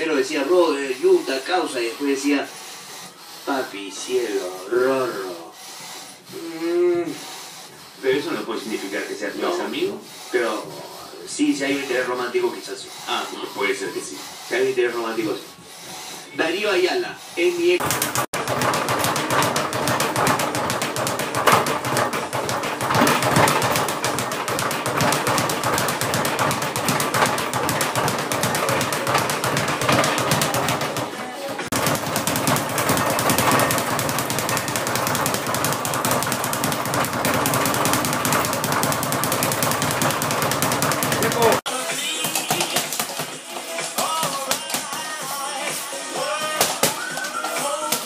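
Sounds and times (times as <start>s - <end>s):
speed bag rattling: 17.8s - 45.0s.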